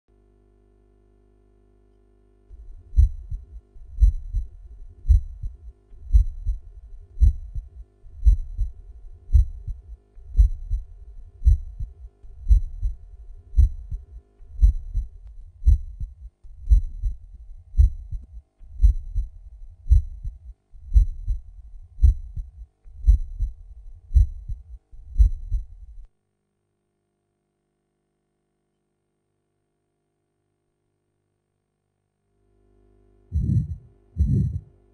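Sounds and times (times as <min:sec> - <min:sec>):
heartbeat lub-dub: 0:02.5 - 0:26.1, 0:33.3 - 0:34.7.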